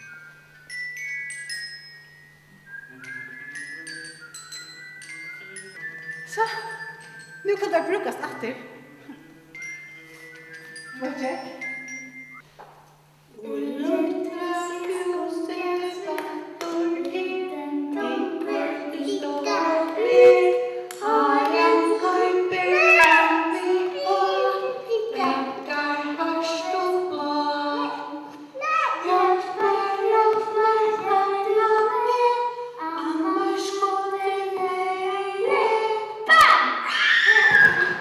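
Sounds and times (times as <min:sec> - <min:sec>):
woman singing high: 0:13.3 - 0:28.2.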